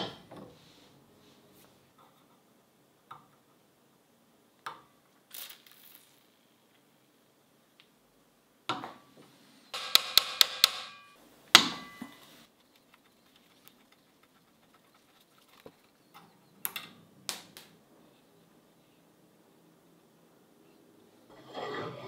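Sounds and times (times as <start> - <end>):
sharp ringing metallic taps: 9.8 - 11.2.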